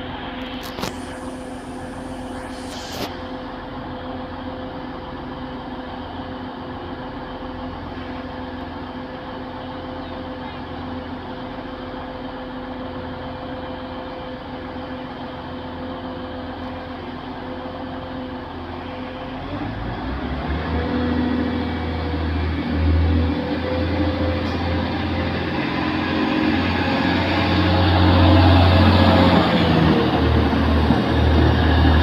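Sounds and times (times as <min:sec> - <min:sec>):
diesel train engines idling: 0:00.0 - 0:32.0.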